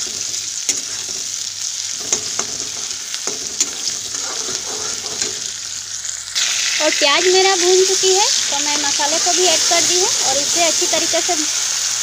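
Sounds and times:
spatula scraping metal pan: 0.0s - 5.6s
onions sizzling in hot oil: 0.0s - 12.0s.

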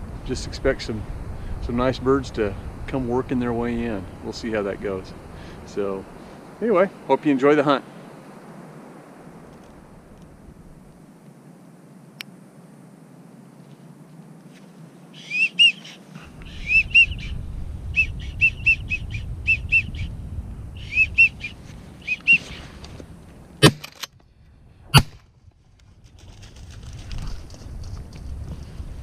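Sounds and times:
wigeon whistles: 15.2s - 20.1s, 20.8s - 22.6s.

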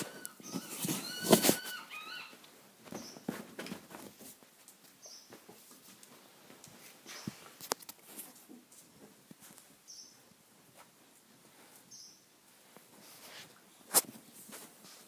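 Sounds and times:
puppy squeaks: 0.0s - 2.4s
faint scuffling: 0.0s - 11.9s, 12.5s - 15.0s.

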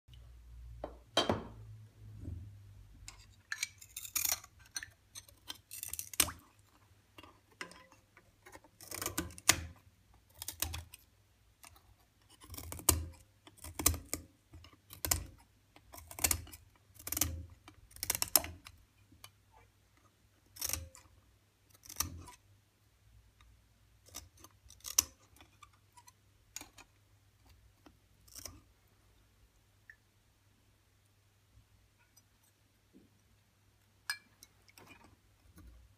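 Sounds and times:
scissors snipping glass underwater: 3.1s - 6.6s, 7.2s - 11.0s, 11.6s - 19.4s, 20.5s - 21.1s, 21.7s - 22.4s, 24.0s - 26.9s, 28.3s - 28.7s.

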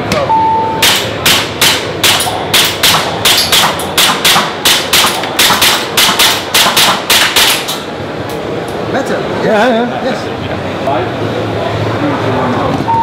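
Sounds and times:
airsoft pistol shots: 0.8s - 7.8s.

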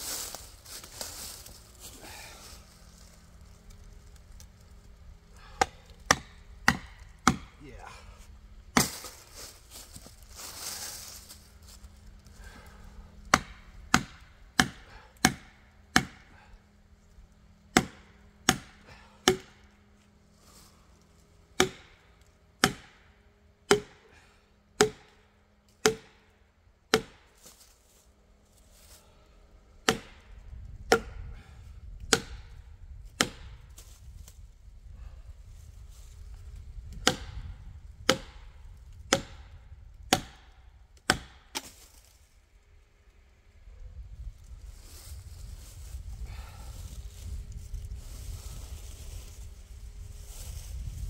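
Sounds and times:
hammer striking wedge with ring: 23.7s - 24.0s, 24.8s - 25.0s.

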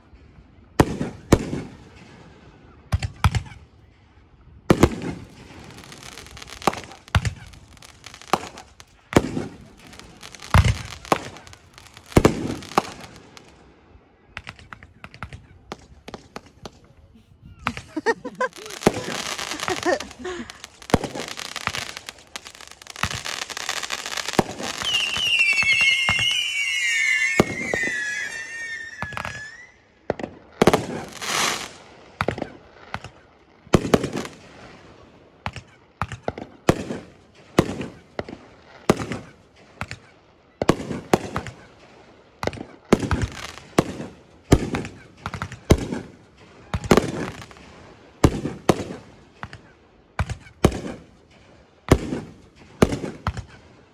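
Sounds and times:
sharp firework bangs: 4.7s - 13.5s, 17.6s - 33.1s
fireworks crackling: 4.7s - 53.9s
fireworks whistles falling in pitch: 17.6s - 29.9s.

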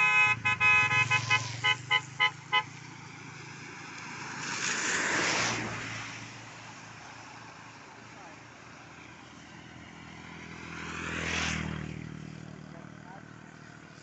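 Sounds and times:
vehicle horn tooting: 0.0s - 2.8s.

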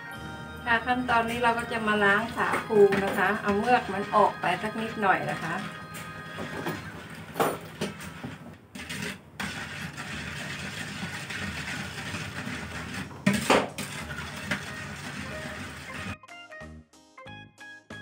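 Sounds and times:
ladle scraping and clinking on pot: 5.2s - 16.2s
water pouring from a jug: 13.8s - 16.0s.

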